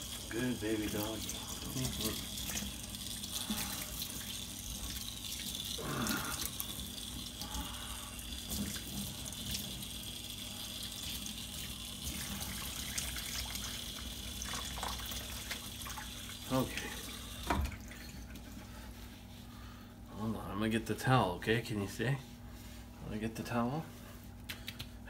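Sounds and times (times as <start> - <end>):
water running from sprayer: 0.0 - 18.0.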